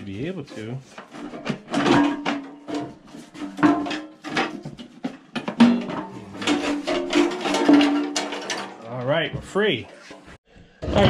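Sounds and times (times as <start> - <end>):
knocks and clatter of gas tank: 1.0 - 8.8.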